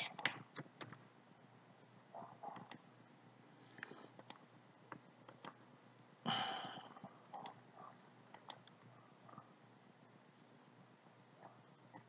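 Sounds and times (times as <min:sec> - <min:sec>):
computer mouse clicks: 0:00.0 - 0:01.0, 0:02.5 - 0:02.8, 0:03.8 - 0:05.6, 0:07.3 - 0:07.6, 0:08.3 - 0:09.4.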